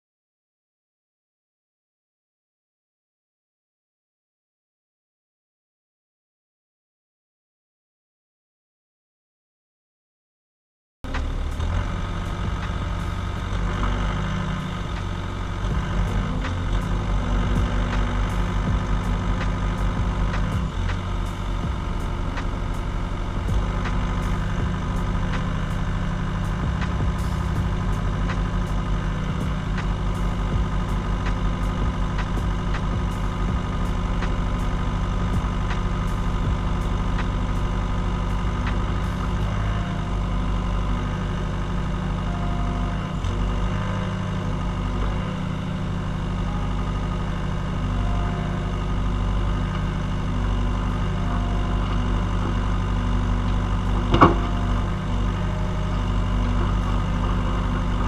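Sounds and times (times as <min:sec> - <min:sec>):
excavator diesel engine running: 0:11.0 - 0:58.0.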